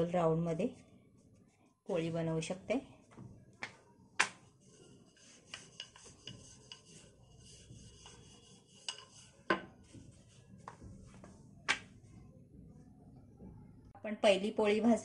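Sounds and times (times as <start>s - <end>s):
rolling pin rubbing dough: 4.2s - 12.2s.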